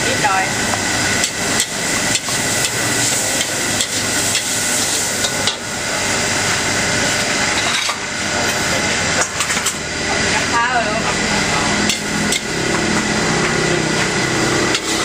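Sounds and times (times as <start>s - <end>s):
frying hiss: 0.0s - 7.4s.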